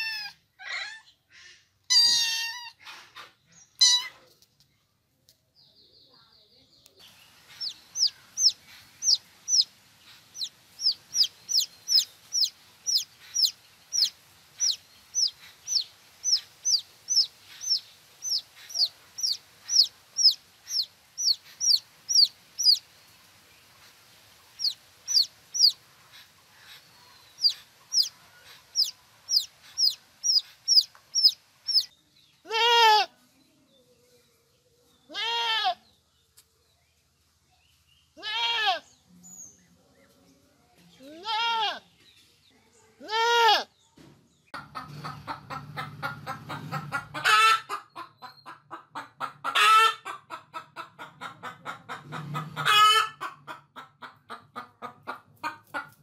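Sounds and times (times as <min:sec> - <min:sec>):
chick peeping: 0:06.8 - 0:31.9, 0:44.5 - 0:56.0
goat bleating: 0:32.5 - 0:33.1, 0:35.1 - 0:35.8, 0:38.2 - 0:38.8, 0:41.1 - 0:41.8, 0:43.0 - 0:43.7.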